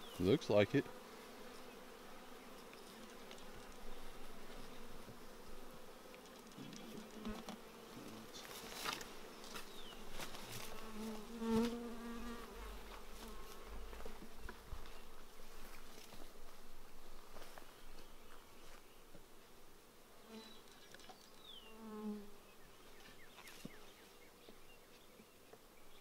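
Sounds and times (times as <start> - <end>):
honeybees buzzing: 0.0 - 26.0
bee flying close past: 0.8 - 15.2, 21.4 - 23.8.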